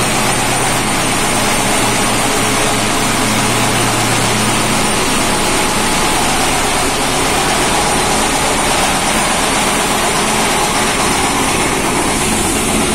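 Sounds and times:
sandblaster hissing: 0.0s - 12.9s.

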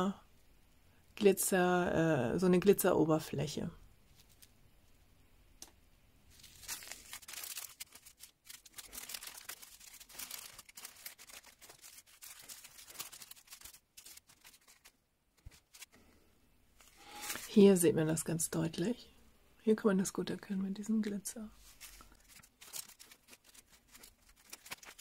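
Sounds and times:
plastic bags crinkling: 6.3s - 16.1s, 16.8s - 17.7s, 21.6s - 25.0s.

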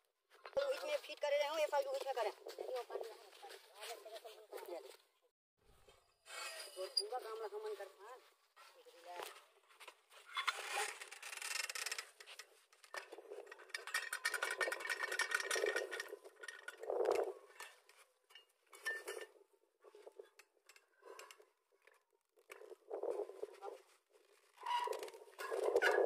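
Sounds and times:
metal parts clinking and clattering: 12.9s - 22.0s.

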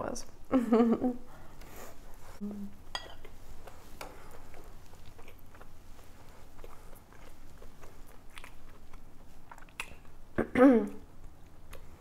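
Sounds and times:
person chewing salad: 2.9s - 10.4s, 11.0s - 12.0s.

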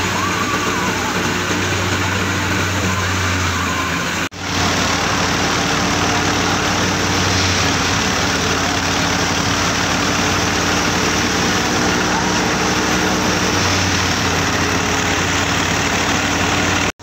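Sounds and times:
thresher rushing noise: 0.0s - 17.0s
tractor engine drone: 0.0s - 17.0s.

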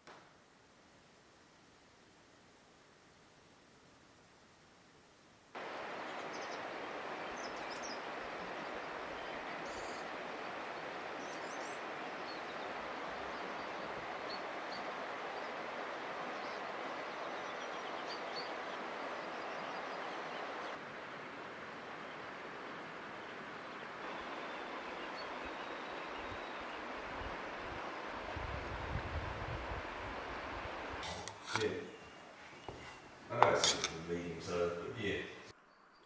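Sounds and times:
river flowing: 5.5s - 35.5s
faint bird chirps: 5.8s - 20.8s, 23.2s - 26.9s, 31.6s - 33.2s, 35.0s - 36.0s.

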